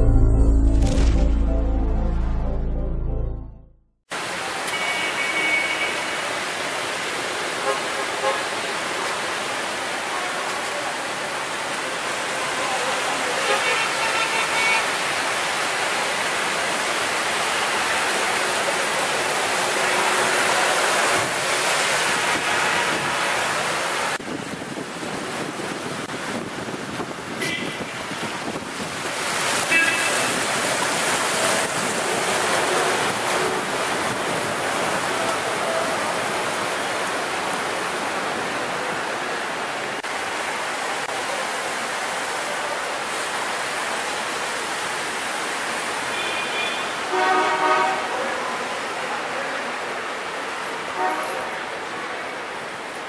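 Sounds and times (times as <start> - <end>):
tyres splashing through water: 4.2 - 52.7
wind noise on microphone: 24.2 - 29.5.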